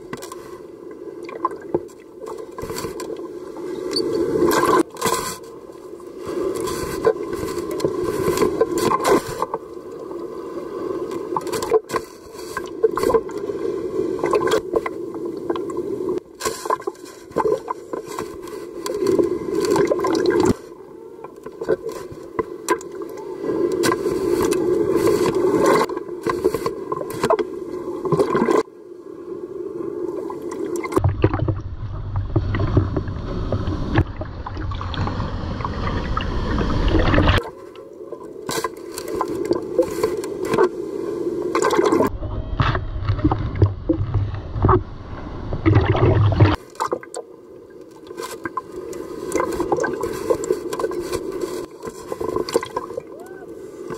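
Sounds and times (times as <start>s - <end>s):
churning water rumble: 30.8s - 37.4s, 41.5s - 47.1s
knocks and scrapes: 31.0s - 35.2s, 42.6s - 46.6s.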